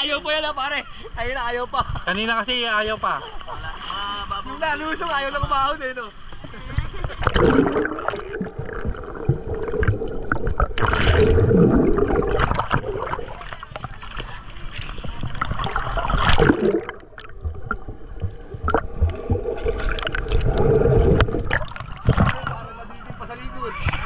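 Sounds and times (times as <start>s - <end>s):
water splashing and sloshing: 4.9s - 24.0s
underwater gurgling and bubbling: 6.7s - 23.2s.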